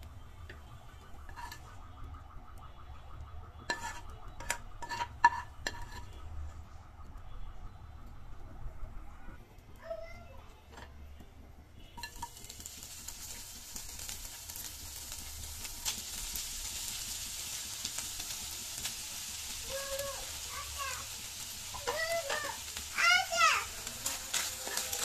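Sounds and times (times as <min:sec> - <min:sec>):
fish sizzling in oil: 0:00.0 - 0:01.8, 0:11.8 - 0:25.0
spatula scraping and tapping pan: 0:00.5 - 0:01.8, 0:03.6 - 0:06.3, 0:12.0 - 0:13.4, 0:21.7 - 0:22.6, 0:24.0 - 0:25.0.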